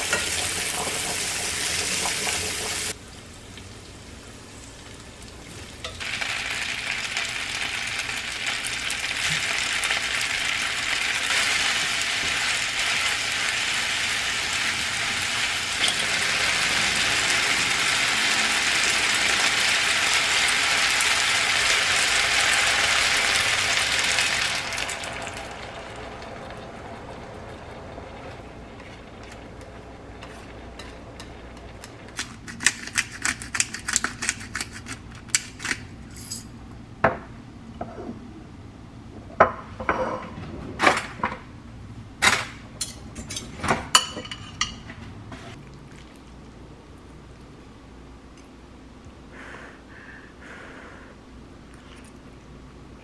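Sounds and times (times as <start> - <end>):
food sizzling in a frying pan: 0.0 - 26.4
utensils clinking against pan and bowl: 42.8 - 44.9.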